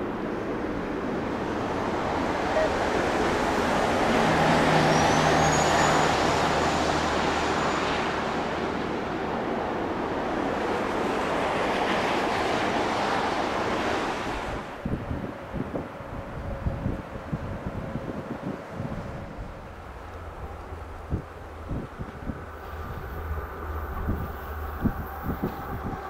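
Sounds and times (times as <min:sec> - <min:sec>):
freight train rolling past: 0:00.0 - 0:26.0
wind gusts on microphone: 0:00.0 - 0:26.0
high wheel squeal: 0:04.4 - 0:08.2.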